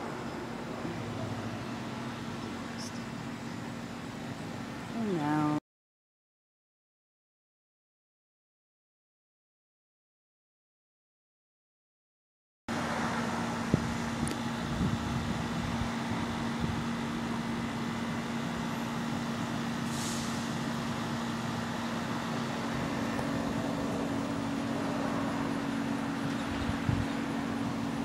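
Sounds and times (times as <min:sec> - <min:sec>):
urban background noise: 0:00.0 - 0:05.6, 0:12.7 - 0:28.0.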